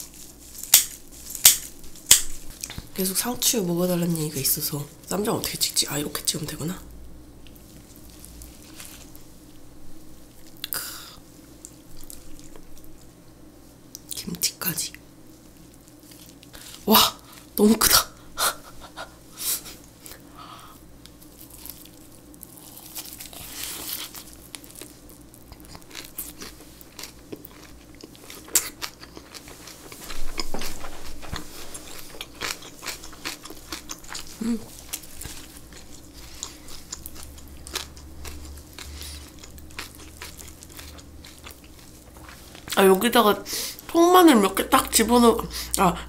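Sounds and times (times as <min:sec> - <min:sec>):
crisp lettuce crunches: 0:00.0 - 0:03.3, 0:07.5 - 0:09.4, 0:15.4 - 0:17.6, 0:20.0 - 0:43.0
wet chewing: 0:21.0 - 0:43.0.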